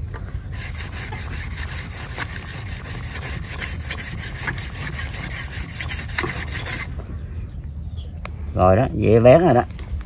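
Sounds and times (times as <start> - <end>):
whetstone scraping knife blade: 0.5 - 6.9.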